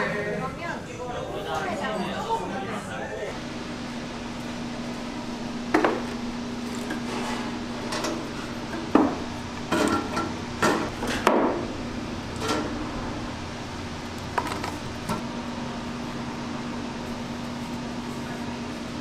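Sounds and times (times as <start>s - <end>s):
steady low hum: 2.4s - 19.0s.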